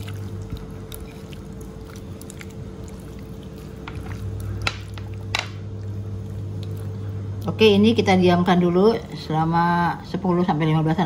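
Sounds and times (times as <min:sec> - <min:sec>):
wet squelching of kneaded fish: 0:00.0 - 0:07.8.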